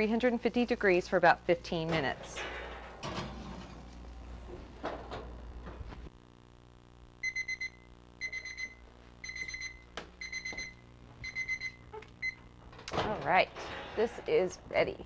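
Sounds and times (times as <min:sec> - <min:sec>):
kitchen timer beeping: 0:07.2 - 0:12.4.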